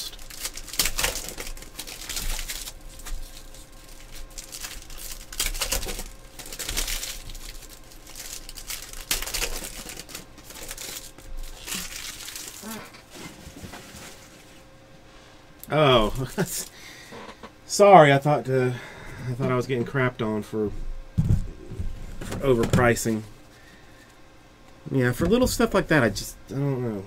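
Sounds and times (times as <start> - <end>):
foil wrappers crinkling and tearing: 0.0 - 14.6.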